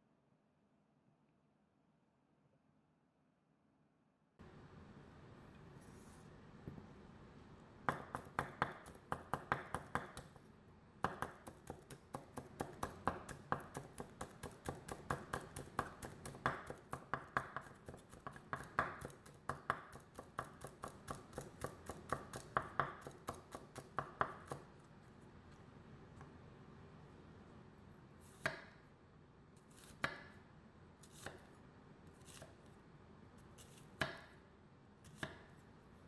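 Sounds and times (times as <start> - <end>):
knife chopping on wooden board: 7.8 - 10.3, 11.0 - 24.7, 33.7 - 34.4, 35.1 - 35.5.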